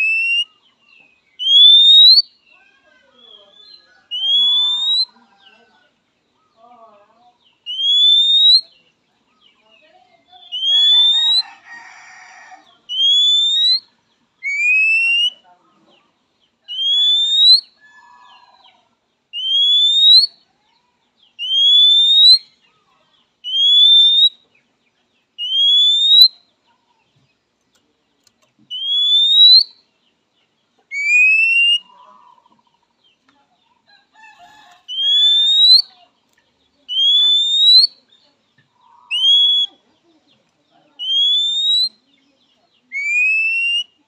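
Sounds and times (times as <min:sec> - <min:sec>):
soft bird chattering notes: 0:03.1 - 0:05.6, 0:21.3 - 0:44.0
bird rising whistle call: 0:16.7 - 0:17.7, 0:25.4 - 0:26.3, 0:28.7 - 0:29.7, 0:30.9 - 0:31.9, 0:34.9 - 0:35.9, 0:36.9 - 0:38.0, 0:41.0 - 0:42.0, 0:43.0 - 0:43.9.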